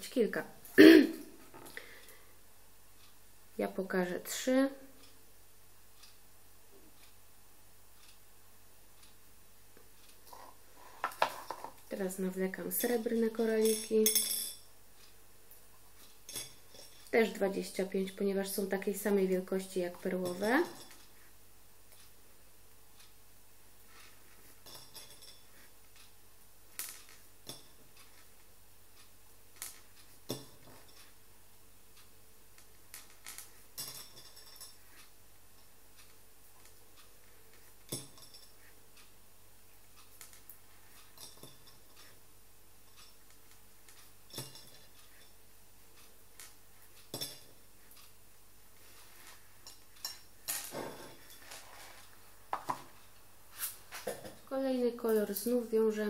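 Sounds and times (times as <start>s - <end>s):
beads clicking against a plate: 12.7s - 14.7s, 16.0s - 21.2s, 23.9s - 28.4s, 29.0s - 31.1s, 32.0s - 38.7s, 40.0s - 42.2s, 42.8s - 45.4s, 46.0s - 48.1s
beads clicking against plate: 24.6s - 28.4s, 29.0s - 31.1s.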